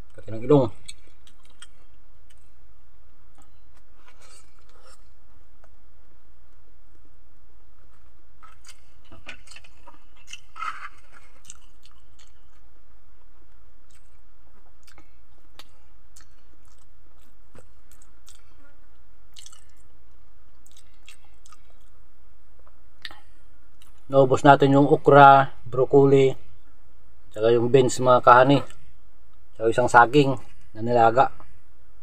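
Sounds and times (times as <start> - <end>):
steady low hum: 0.0 - 32.0
person chewing soft food: 0.8 - 2.6, 7.8 - 22.0.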